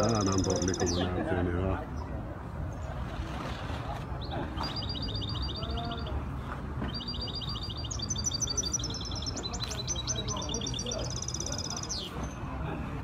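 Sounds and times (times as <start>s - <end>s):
songbird singing fast trills: 0.0s - 1.1s, 6.9s - 12.3s.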